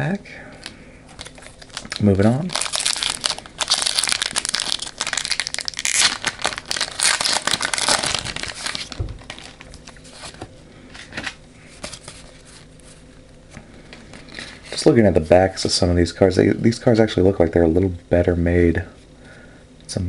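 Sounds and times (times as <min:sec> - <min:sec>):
foil wrapper crinkling and tearing: 0:01.2 - 0:10.4.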